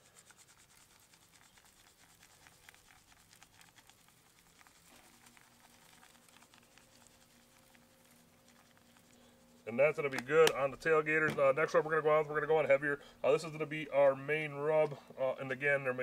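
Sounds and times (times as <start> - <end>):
granules pattering from shaker: 0.0 - 11.0
faint steady buzz: 0.0 - 16.0.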